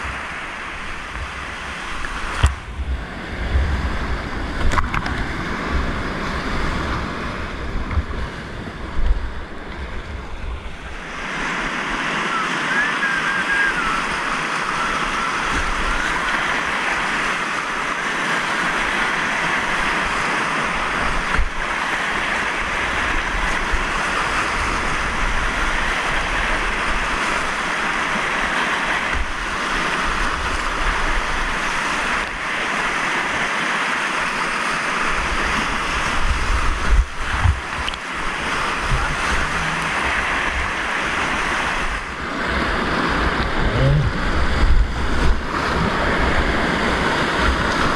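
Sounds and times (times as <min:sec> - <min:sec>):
whitewater rapids rushing: 0:00.0 - 0:47.9
low thumps and buffeting: 0:00.9 - 0:11.2, 0:36.2 - 0:46.7.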